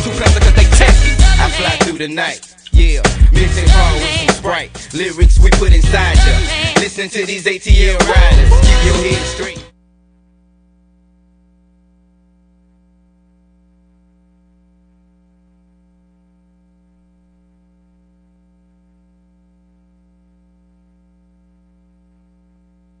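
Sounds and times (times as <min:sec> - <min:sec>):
electrical mains hum: 0:09.7 - 0:23.0.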